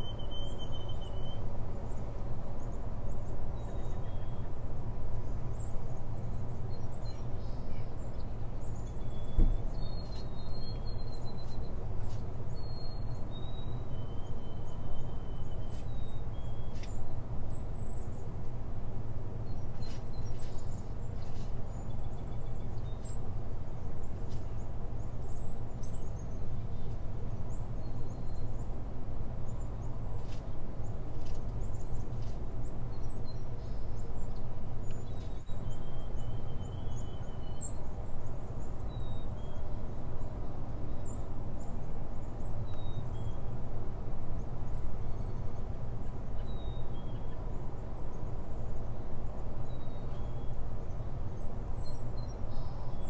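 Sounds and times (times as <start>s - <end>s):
faint bird chirps: 0.0s - 2.0s, 2.6s - 4.5s, 5.6s - 18.3s, 32.9s - 37.9s.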